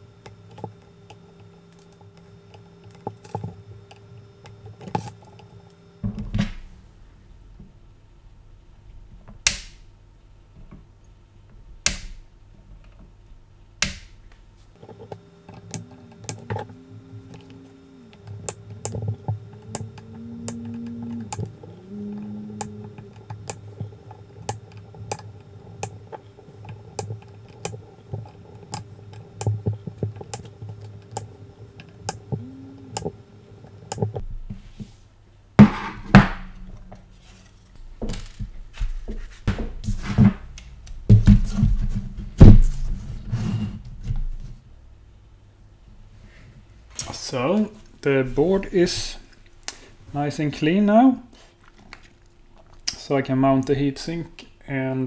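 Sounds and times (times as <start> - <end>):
flush cutters snipping leads: 14.8 - 34.2.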